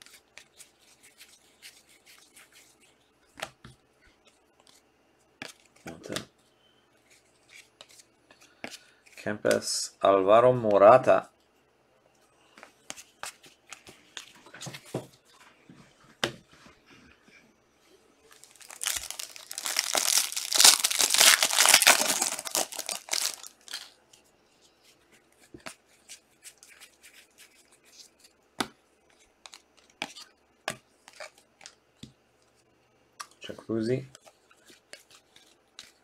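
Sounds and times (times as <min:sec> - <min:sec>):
plastic wrapper tearing and crinkling: 0:18.3 - 0:24.0.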